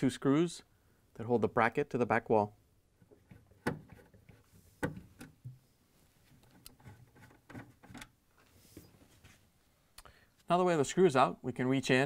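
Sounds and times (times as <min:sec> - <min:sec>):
nut driver clicks and knocks: 0:03.0 - 0:05.6.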